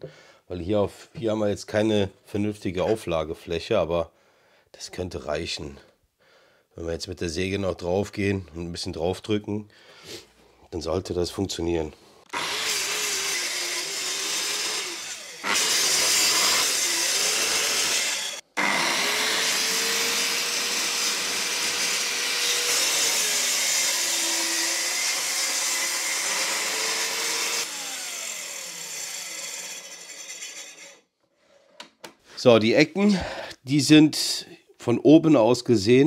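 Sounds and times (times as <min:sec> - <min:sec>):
circular saw cutting worktop: 0:11.7 - 0:32.2.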